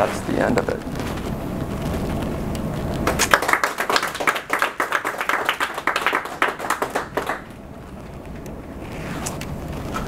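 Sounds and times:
audience applauding: 3.0s - 7.6s.

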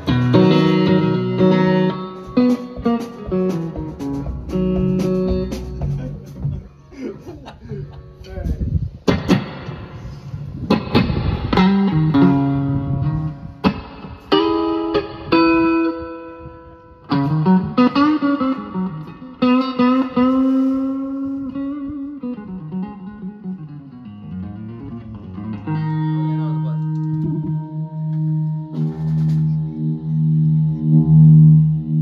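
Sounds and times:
electric guitar notes and chords: 0.0s - 32.0s.

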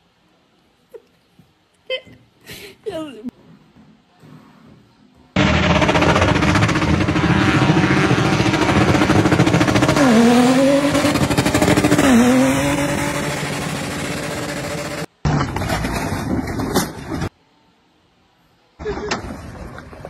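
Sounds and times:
engine revving hard: 5.4s - 15.1s.

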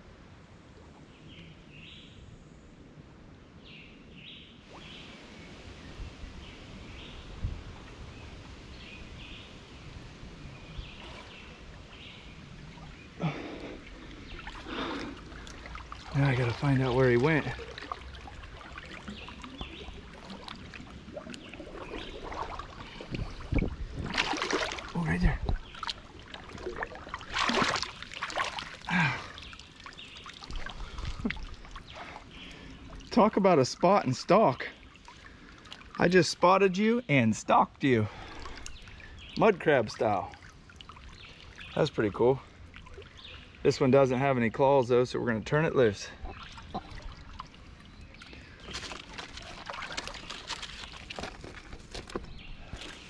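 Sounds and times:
birds calling: 10.4s - 53.0s
water sloshing from wading: 10.5s - 36.3s, 38.1s - 44.4s, 45.3s - 53.0s.

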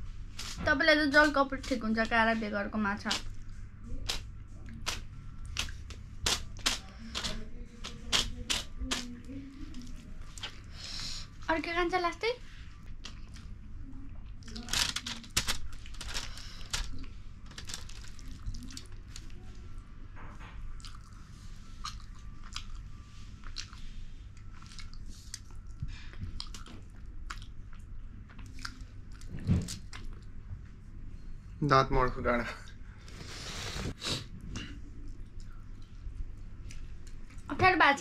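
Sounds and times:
chewing with wet mouth clicks: 13.0s - 13.6s, 20.7s - 30.3s.

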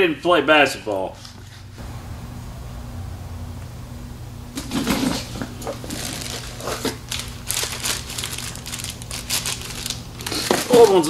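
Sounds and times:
steady low hum: 0.7s - 10.7s
crinkling and scraping: 4.6s - 11.0s.

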